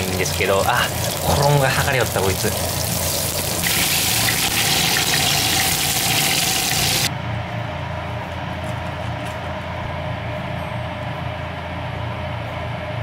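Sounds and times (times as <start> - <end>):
oil sizzling in a frying pan: 0.0 - 7.1.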